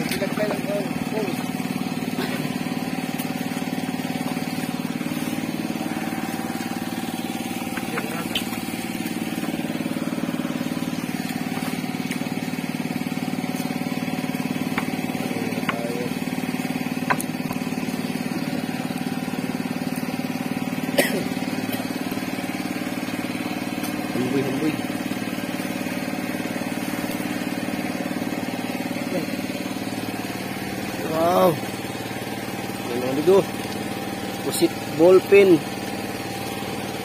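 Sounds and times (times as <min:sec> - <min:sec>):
small boat engine running: 0:00.0 - 0:37.0.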